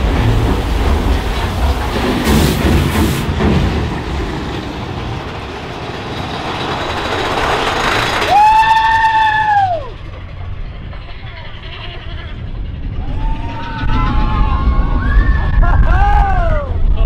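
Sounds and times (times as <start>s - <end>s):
roller coaster rumbling on track: 0.0s - 17.0s
long high wail: 13.0s - 16.8s.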